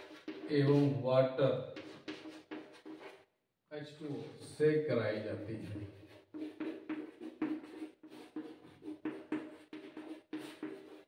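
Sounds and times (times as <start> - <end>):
chalk scratching on blackboard: 0.0 - 1.0, 1.8 - 3.2, 5.1 - 11.0.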